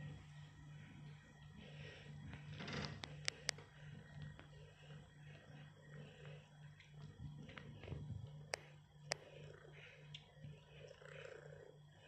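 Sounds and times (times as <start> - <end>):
kitten purring: 5.2 - 12.0.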